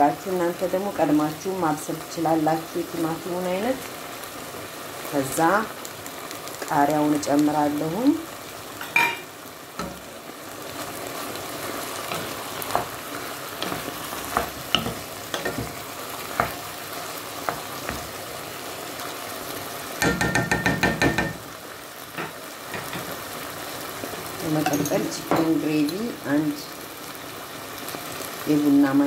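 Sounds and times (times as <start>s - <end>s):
food sizzling in a pot: 0.0s - 29.0s
wooden spoon clacking against pot: 20.0s - 21.4s.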